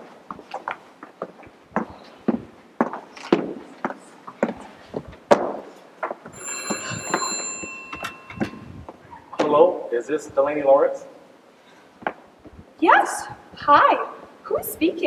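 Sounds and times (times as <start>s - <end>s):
electronic telephone ringing: 6.3s - 8.9s.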